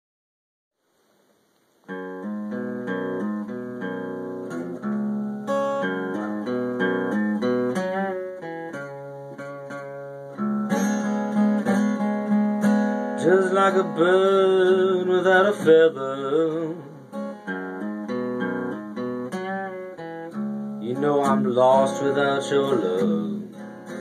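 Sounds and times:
acoustic guitar picking: 1.8 - 24.0.

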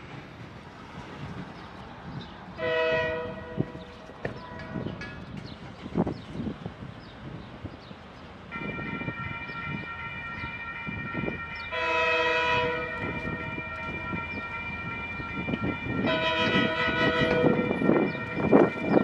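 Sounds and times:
locomotive horn: 2.6 - 5.0, 8.6 - 19.0.

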